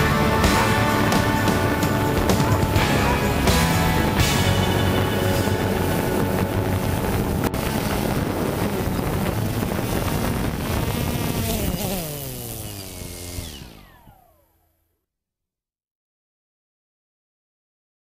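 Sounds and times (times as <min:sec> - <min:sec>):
wind on microphone: 0:00.0 - 0:13.9
drone propellers buzzing: 0:00.0 - 0:14.8
motors winding down whine: 0:00.0 - 0:14.9.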